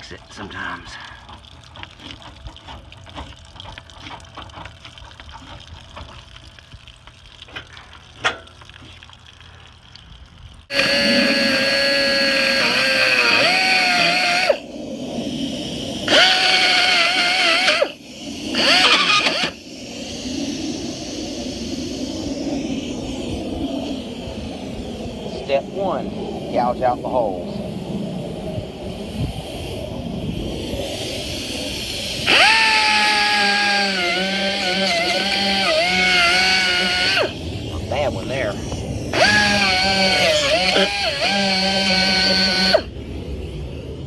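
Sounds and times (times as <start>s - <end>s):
power tool whining: 10.7s - 14.6s, 16.1s - 20.2s, 31.4s - 37.4s, 39.1s - 43.1s.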